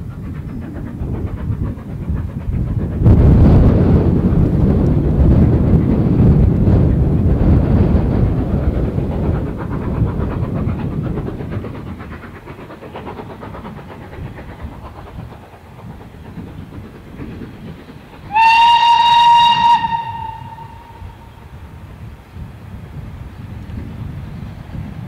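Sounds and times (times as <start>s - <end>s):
steam locomotive whistle: 18.3s - 21.5s.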